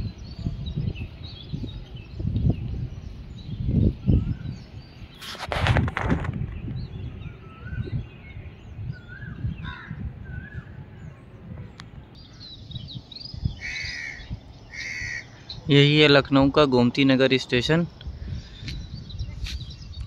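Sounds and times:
birds chirping: 0.0 - 20.0
crow cawing: 13.6 - 15.4.

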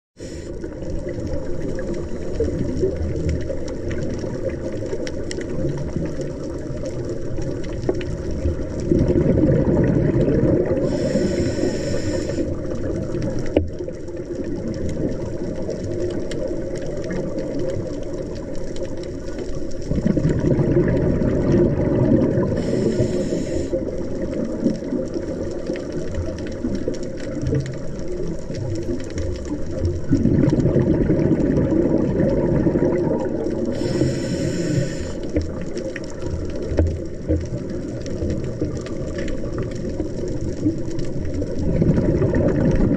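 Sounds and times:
diver breathing through regulator: 0.2 - 0.6, 10.6 - 12.6, 22.4 - 23.9, 33.6 - 35.4
exhaled bubbles: 0.2 - 42.9
brief hiss: 10.9 - 12.5, 22.6 - 23.8, 33.8 - 35.2.

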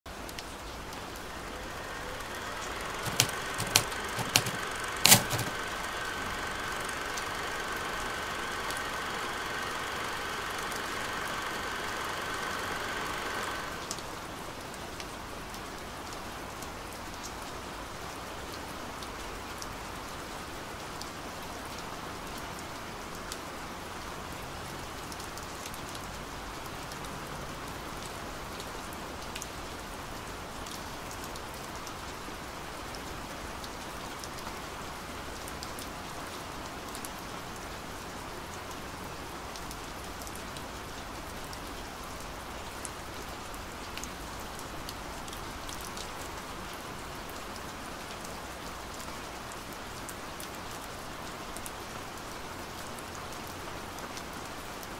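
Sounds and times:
steady rain: 0.1 - 54.9
steady hum: 1.0 - 13.9
sharp clicks: 1.8 - 7.7, 8.3 - 14.0.

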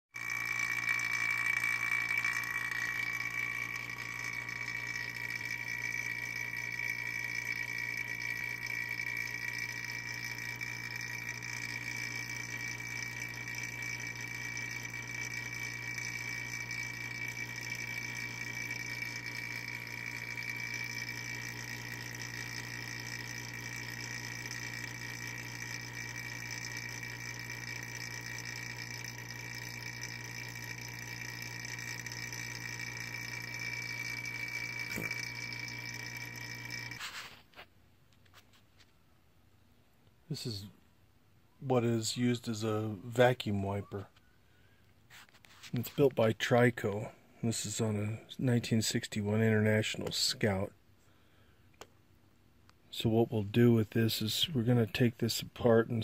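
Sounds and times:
electric vacuum pump whining: 0.1 - 37.6.

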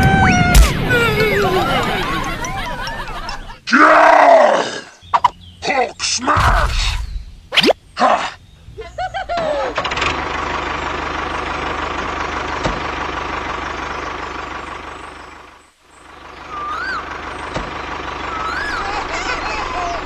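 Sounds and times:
vehicle engine rattling: 9.2 - 20.0.

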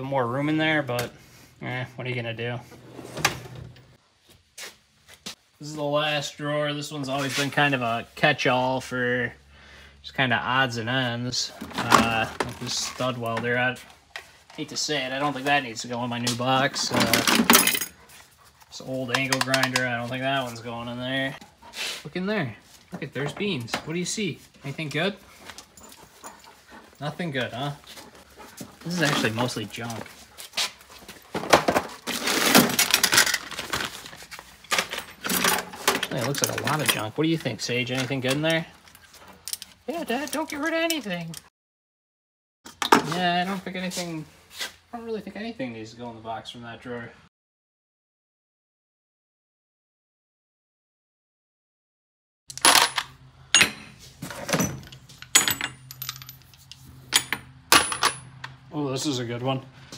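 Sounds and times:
metal tools clattering in drawer: 16.7 - 18.0, 31.3 - 33.9, 34.7 - 37.1, 52.5 - 58.3.

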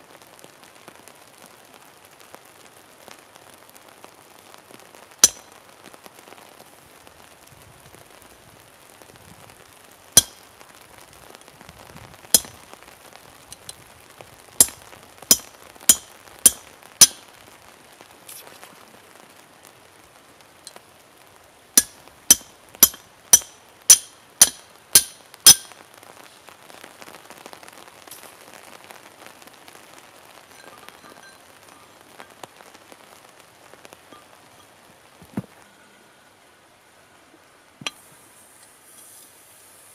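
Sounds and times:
hammer striking steel punch: 14.6 - 17.2, 21.8 - 25.7.

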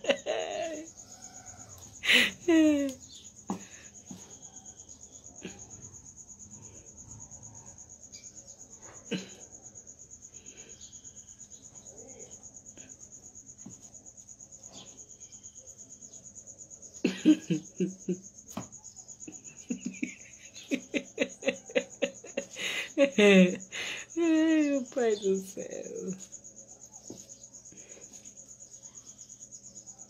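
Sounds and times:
insect trilling: 0.0 - 8.6.

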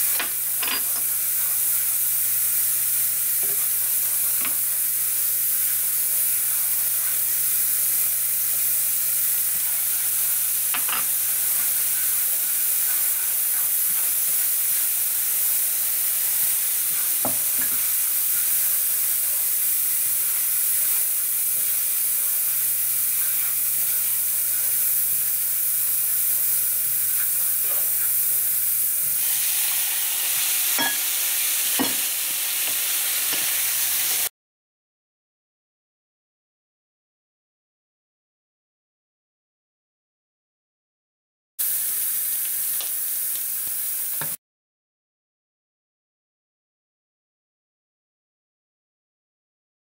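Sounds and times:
utensils tapping against pan: 0.0 - 1.1, 10.7 - 12.1, 17.0 - 17.9, 30.8 - 31.0, 31.8 - 33.5
food sizzling in frying pan: 0.0 - 34.3, 41.6 - 44.4.

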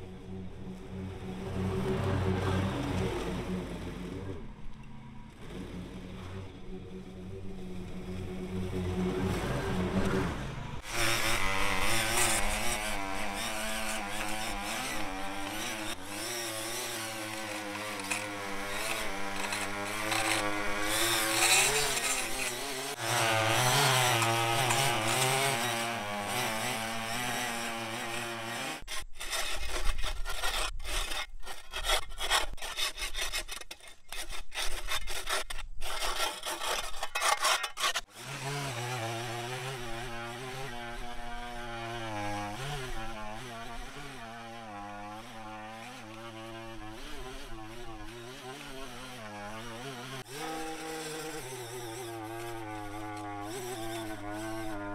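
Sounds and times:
small petrol engine running: 0.0 - 26.7, 38.2 - 54.9.

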